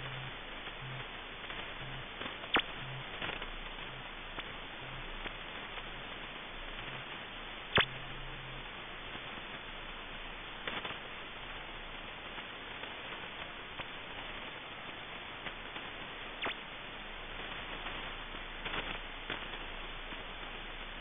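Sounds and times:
sharp radio clicks: 0:00.0 - 0:05.9
radio static hiss: 0:00.0 - 0:21.0.

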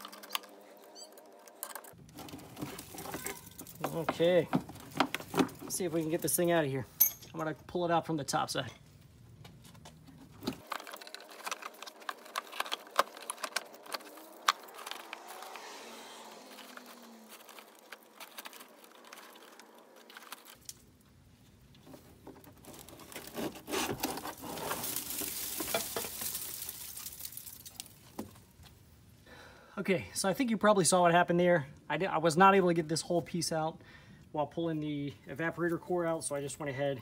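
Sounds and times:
dried leaves rustling: 0:02.0 - 0:06.6, 0:10.6 - 0:28.9.

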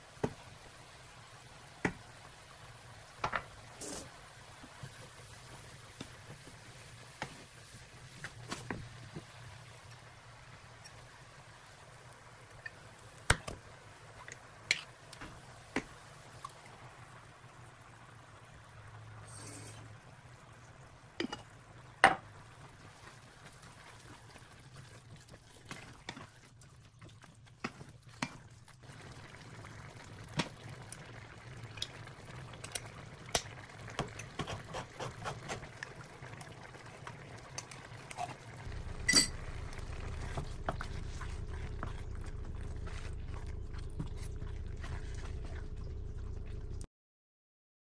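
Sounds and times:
steady low hum: 0:38.6 - 0:46.8.

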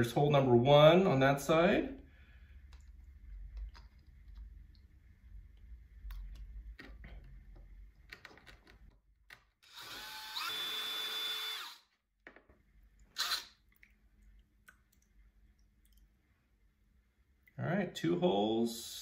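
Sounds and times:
cordless drill boring into rock: 0:09.6 - 0:11.8, 0:13.2 - 0:13.5.

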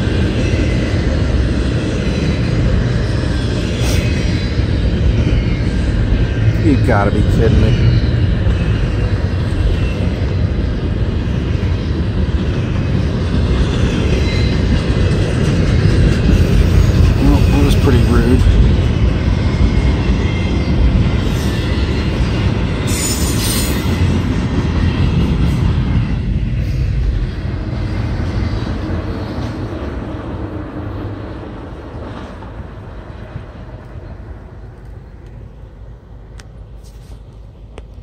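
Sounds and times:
freight train wheels rumbling on rails: 0:00.0 - 0:38.0
high wheel squeal: 0:21.2 - 0:24.1.

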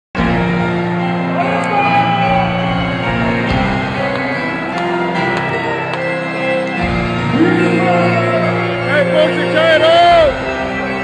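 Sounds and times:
bass line: 0:06.9 - 0:09.6.

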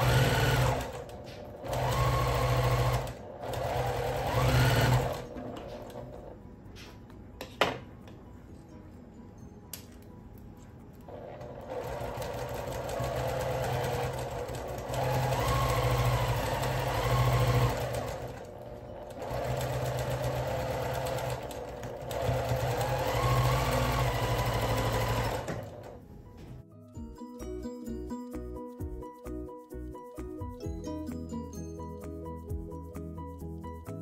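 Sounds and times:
sewing machine stitching: 0:00.0 - 0:06.3, 0:11.1 - 0:26.0.

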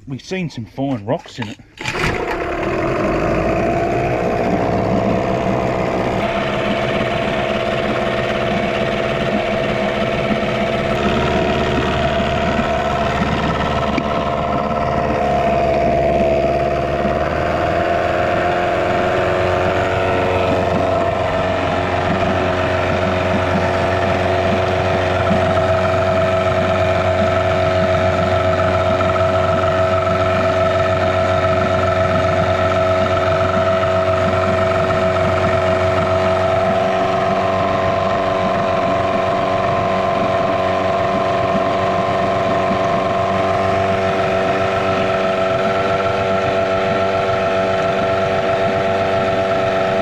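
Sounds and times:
outboard motor running: 0:00.0 - 0:50.0
propeller churning water: 0:00.0 - 0:50.0.

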